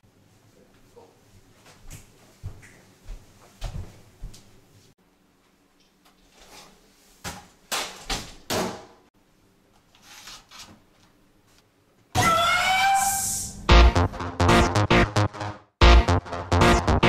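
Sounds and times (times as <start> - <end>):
electronic dance music from radio: 13.7 - 17.0.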